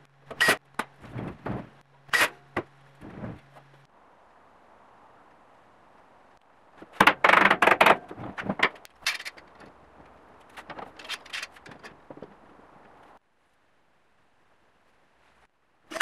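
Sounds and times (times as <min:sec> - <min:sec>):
metal clamps scraping and clanking: 0:07.9 - 0:09.7, 0:10.5 - 0:12.0.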